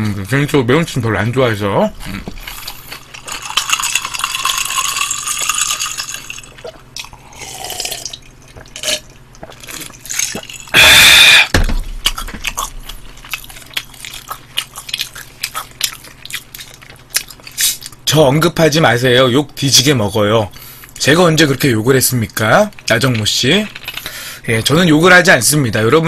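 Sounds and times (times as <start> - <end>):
cola pouring into glass: 3.4 - 9.6
loud noise near microphone: 10.7 - 13.2.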